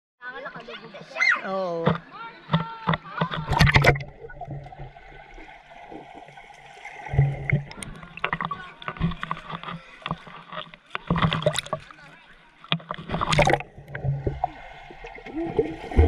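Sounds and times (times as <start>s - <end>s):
water splashing and sloshing: 1.7s - 16.0s
loud splashes or knocks: 3.2s - 11.9s, 12.7s - 16.0s.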